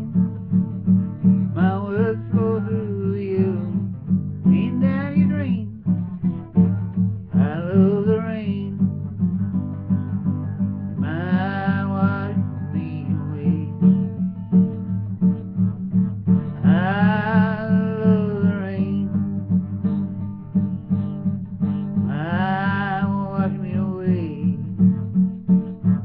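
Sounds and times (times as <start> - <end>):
acoustic guitar strumming: 0.0 - 26.0
man singing: 1.4 - 5.9, 7.2 - 9.1, 10.9 - 14.1, 16.6 - 19.5, 22.0 - 24.8.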